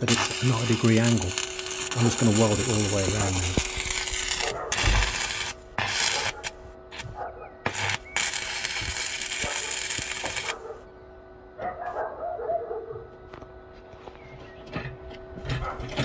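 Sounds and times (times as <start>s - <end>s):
welding arc crackling: 0.0s - 10.6s.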